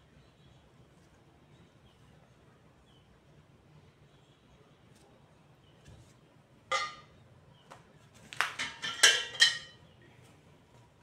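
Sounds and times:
metal frame pieces clanking: 0:08.5 - 0:09.8.

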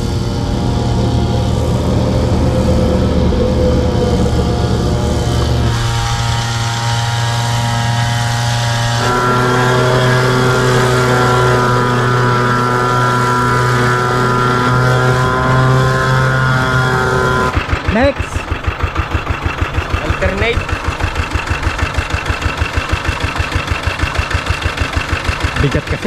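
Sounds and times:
small engine running: 0:00.0 - 0:26.0.

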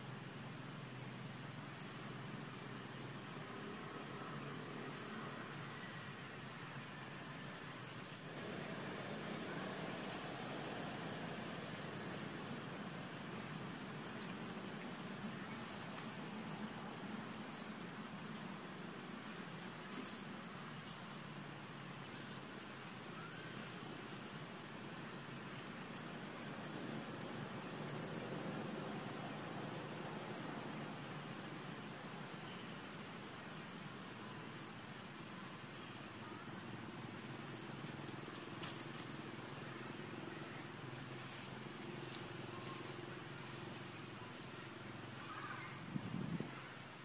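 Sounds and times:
high insect drone: 0:00.0 - 0:47.0
distant engine hum: 0:08.3 - 0:16.6.

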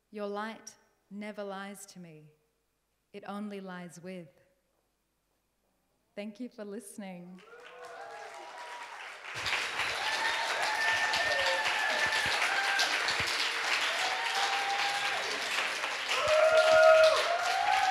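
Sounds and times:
audience applauding: 0:07.4 - 0:17.9.

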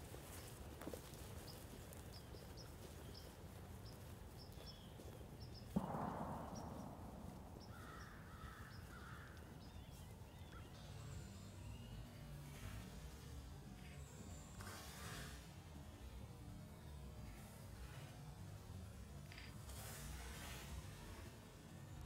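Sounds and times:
small birds chirping: 0:00.0 - 0:12.7
sharp bang: 0:05.7 - 0:08.9
crows cawing: 0:05.8 - 0:09.6.

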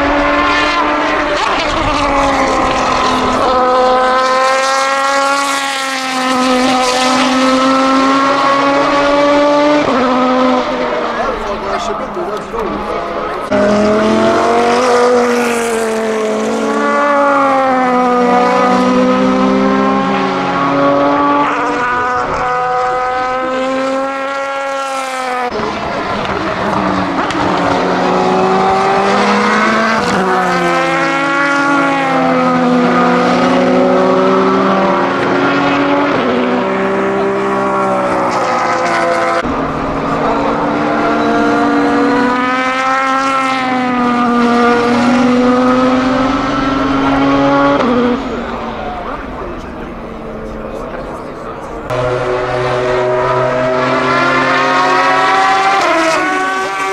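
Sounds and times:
racing engine going past: 0:00.0 - 0:56.9.

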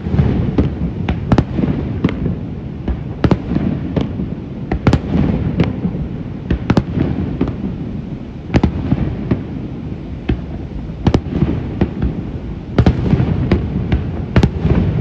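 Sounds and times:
fireworks bursting: 0:00.0 - 0:15.0.

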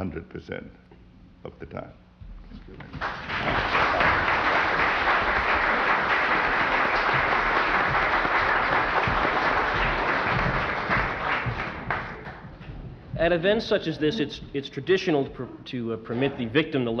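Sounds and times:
audience applauding: 0:02.9 - 0:12.6.

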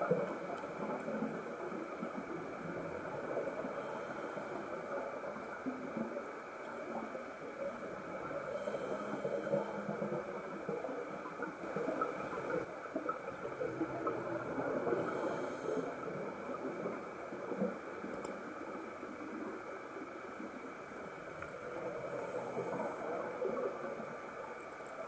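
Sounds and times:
underwater crackling and bubbling: 0:00.0 - 0:25.0
hissing breaths through regulator: 0:08.4 - 0:10.1, 0:14.9 - 0:16.1.

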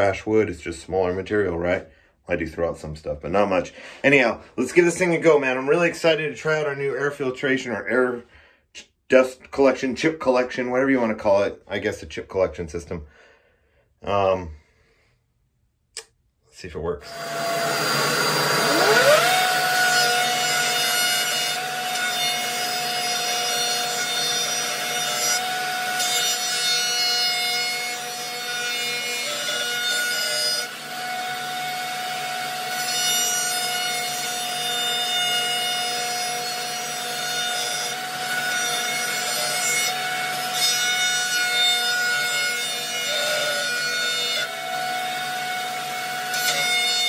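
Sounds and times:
shop vac running: 0:17.0 - 0:26.0, 0:30.6 - 0:33.0, 0:44.4 - 0:46.6
router trimming wood: 0:17.0 - 0:47.0
router whining: 0:17.0 - 0:47.0.

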